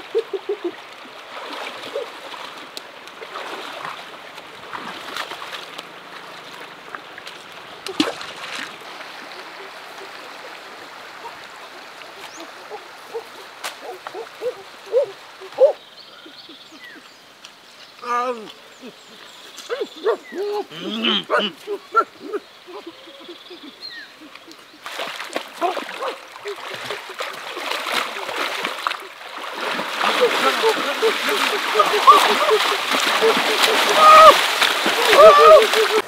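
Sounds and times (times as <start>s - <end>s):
river water flowing and splashing: 0.0s - 36.0s
sharp splash: 1.3s - 5.8s, 7.3s - 9.3s, 24.8s - 36.0s.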